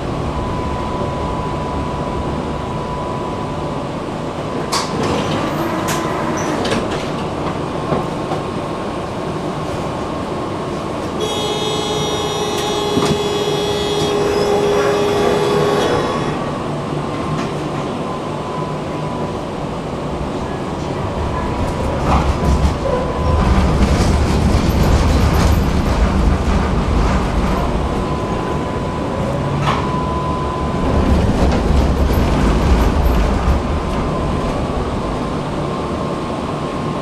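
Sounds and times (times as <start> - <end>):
tram rumbling on rails: 0.0 - 37.0
high-pitched squeal: 11.2 - 16.6.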